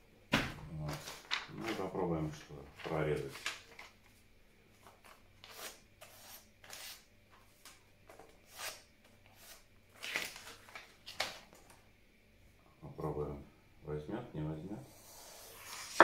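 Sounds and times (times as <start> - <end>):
magazine paper crinkling: 0.9 - 4.2, 10.0 - 11.7.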